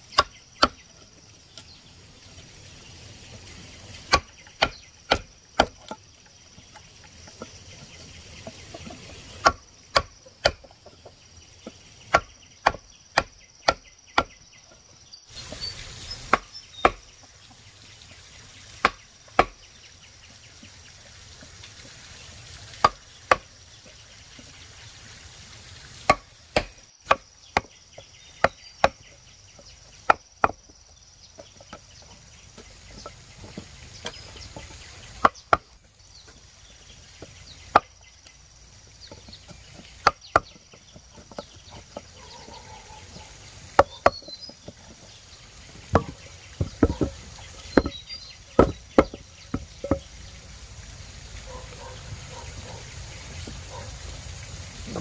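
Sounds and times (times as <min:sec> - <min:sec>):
sharp chopping strikes: 0:04.1 - 0:05.9, 0:09.4 - 0:10.7, 0:12.1 - 0:14.4, 0:18.8 - 0:19.6, 0:26.1 - 0:27.7
faint animal calls: 0:42.0 - 0:44.2.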